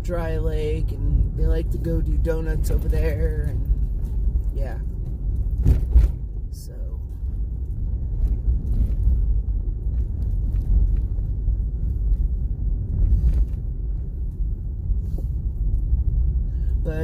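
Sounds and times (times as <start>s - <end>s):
vehicle driving on dirt road: 0.0s - 17.0s.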